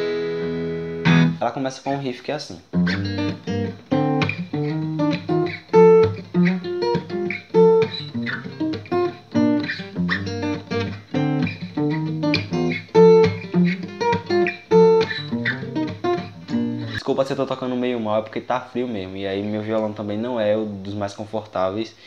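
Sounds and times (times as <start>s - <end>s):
acoustic guitar played fingerstyle: 0.0s - 1.4s, 2.7s - 17.0s.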